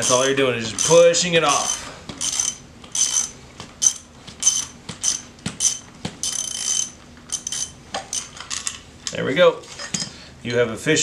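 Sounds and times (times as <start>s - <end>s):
ratchet wrench clicking: 0.0s - 8.3s.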